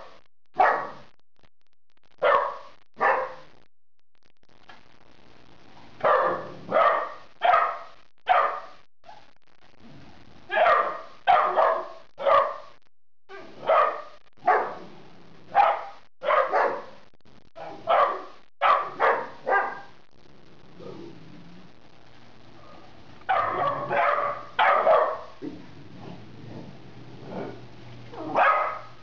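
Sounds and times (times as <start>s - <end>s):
dog barking: 0.6s - 1.0s, 2.2s - 3.5s, 6.0s - 9.2s, 10.5s - 12.7s, 13.3s - 14.8s, 15.5s - 17.0s, 17.6s - 19.9s, 23.3s - 25.4s, 28.2s - 29.0s.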